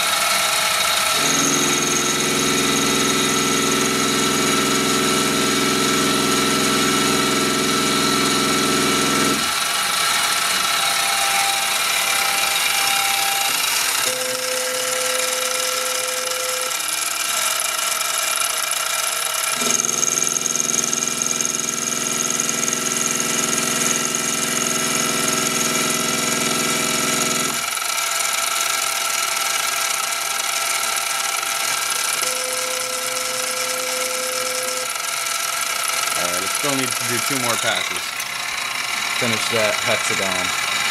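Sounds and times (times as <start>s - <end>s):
stepper motor hum: 0.0s - 16.9s, 30.0s - 40.9s
spindle motor whine: 0.0s - 40.9s.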